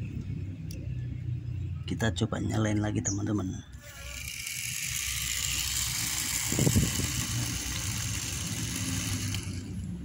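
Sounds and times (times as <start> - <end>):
small electric motor whirring: 3.7 - 10.0.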